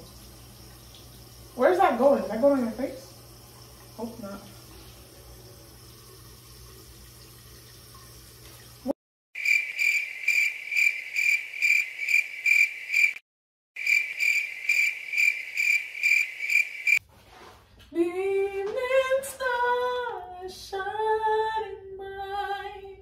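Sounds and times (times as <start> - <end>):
cricket chirping: 9.4 - 13.2, 13.8 - 17.0.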